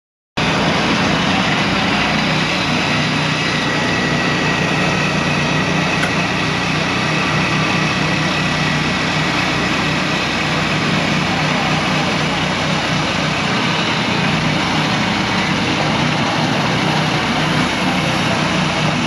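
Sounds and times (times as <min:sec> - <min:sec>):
small gas engine running: 0:00.4 - 0:19.0.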